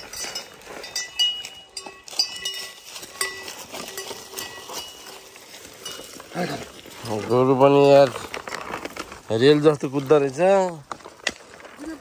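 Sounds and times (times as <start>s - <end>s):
metal bells clinking: 0.0s - 8.2s.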